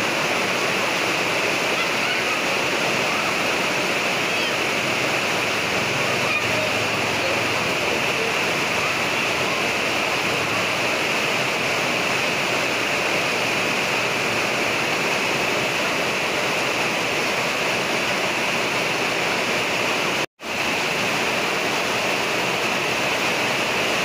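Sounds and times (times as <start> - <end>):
heavy rain: 0.0 - 24.0.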